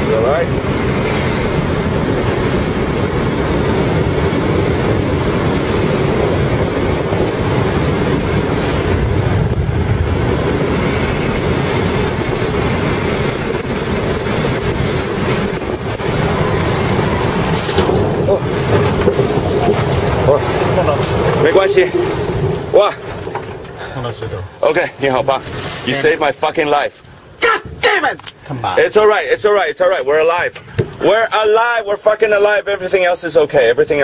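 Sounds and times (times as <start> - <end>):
plane knocking over rough ground: 0.0 - 25.6
air rushing over plane cabin: 0.0 - 26.2.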